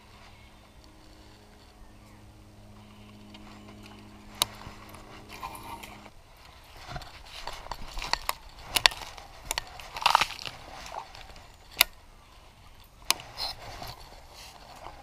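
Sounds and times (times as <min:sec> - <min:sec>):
dry leaves crunching underfoot: 0:00.0 - 0:15.0.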